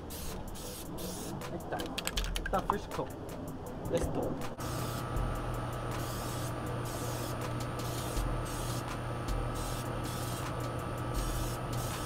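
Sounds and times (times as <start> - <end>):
aerosol spray can hissing: 0.0 - 1.4, 4.6 - 5.1, 5.9 - 12.0
steady low hum: 0.0 - 12.0.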